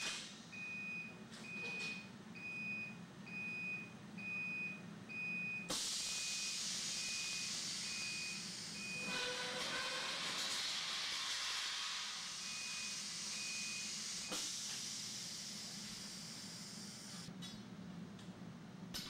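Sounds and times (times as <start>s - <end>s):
high warning beeps: 12.4s - 14.0s.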